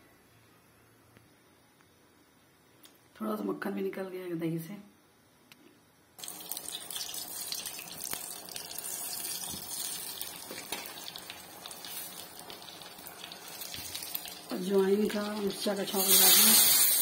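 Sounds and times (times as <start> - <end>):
seeds sizzling in hot fat: 6.2 - 17.0.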